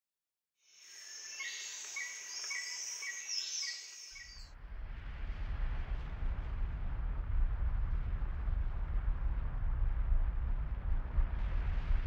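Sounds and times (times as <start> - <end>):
high insect drone: 0.7 - 4.4
bird chirps: 0.7 - 4.5
deep steady rumble: 4.5 - 12.0.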